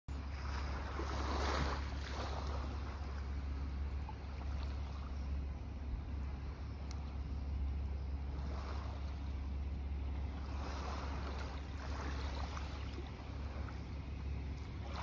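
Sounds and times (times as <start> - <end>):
surf washing on shore: 0.2 - 5.3, 8.2 - 15.0.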